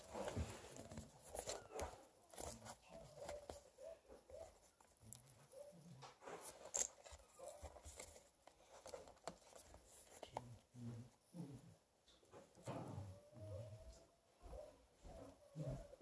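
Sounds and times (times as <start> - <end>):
piglet rustling against bag and paper: 0.0 - 10.4
piglet grunting softly: 10.7 - 11.9.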